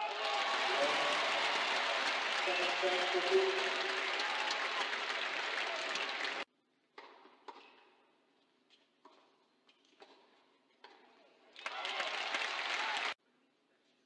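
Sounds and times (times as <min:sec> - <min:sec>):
crowd applause: 0:00.0 - 0:06.4, 0:11.6 - 0:13.2.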